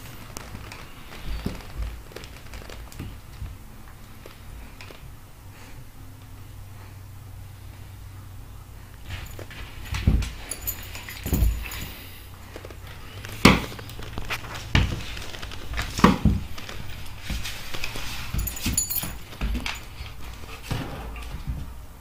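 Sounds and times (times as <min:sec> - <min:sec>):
animals scuffling on wooden floor: 0:00.0 - 0:05.1, 0:09.0 - 0:21.9.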